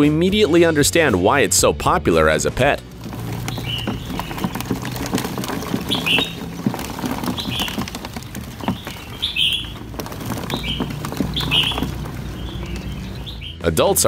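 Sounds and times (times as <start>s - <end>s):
hand rustling through leaves: 2.9s - 13.4s
small bird chirping: 3.2s - 13.7s.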